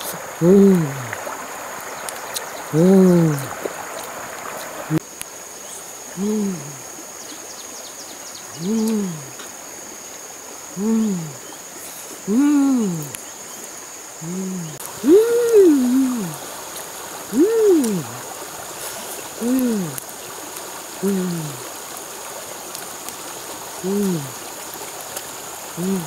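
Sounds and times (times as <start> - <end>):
river running over stones: 0.0 - 26.0
rising and falling call: 14.2 - 16.4, 17.3 - 18.2.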